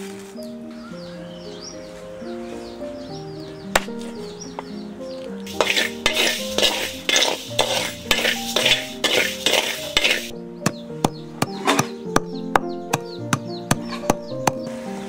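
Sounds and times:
background music: 0:00.0 - 0:15.0
metal spatula scraping wok: 0:05.5 - 0:10.4.

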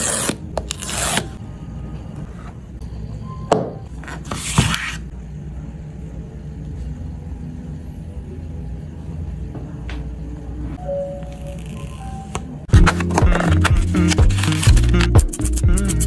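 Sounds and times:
paper tear strip ripping: 0:12.8 - 0:15.9.

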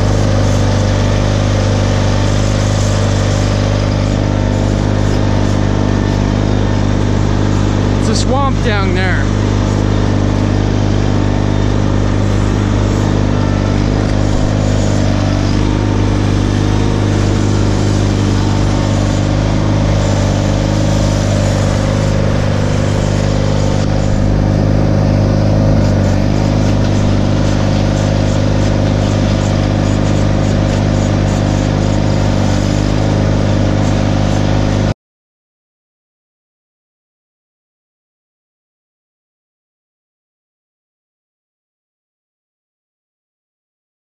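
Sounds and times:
tractor engine running: 0:00.0 - 0:34.9.

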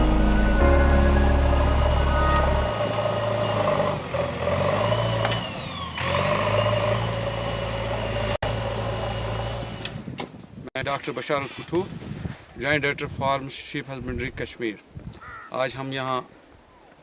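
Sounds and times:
backhoe engine under load: 0:01.2 - 0:10.2.

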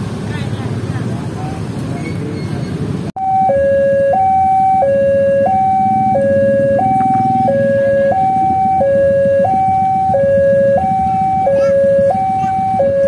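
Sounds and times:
low rumble of engines: 0:00.0 - 0:13.0
motorcycle engines idling: 0:02.9 - 0:13.0
level crossing alarm two-tone: 0:03.2 - 0:13.0.

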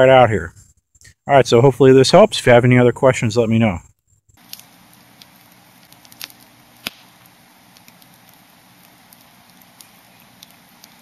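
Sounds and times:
low fire hiss: 0:00.2 - 0:11.0
fire popping: 0:04.2 - 0:11.0
campfire crackling: 0:04.3 - 0:11.0.

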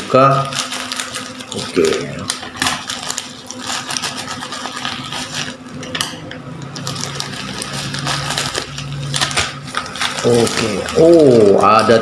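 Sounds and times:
plastic crinkling and rustling: 0:00.0 - 0:12.0.

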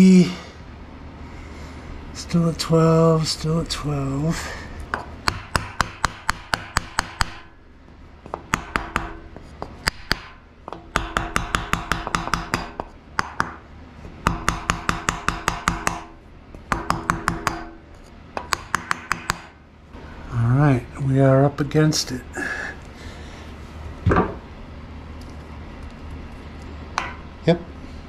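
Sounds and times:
hammer tapping on wooden block: 0:04.9 - 0:07.5, 0:08.3 - 0:13.6, 0:14.2 - 0:17.8, 0:18.4 - 0:19.5, 0:27.0 - 0:27.2.

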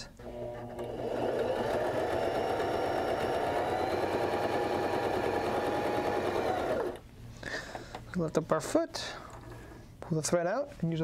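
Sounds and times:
sewing machine stitching: 0:00.2 - 0:07.0.

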